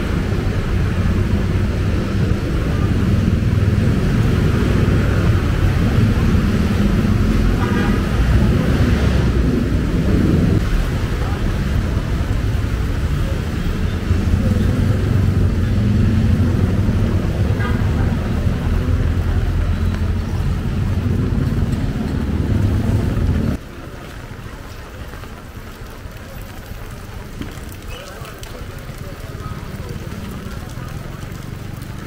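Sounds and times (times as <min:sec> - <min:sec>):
traffic engine rumble: 0:00.0 - 0:32.0
rain hiss: 0:22.5 - 0:32.0.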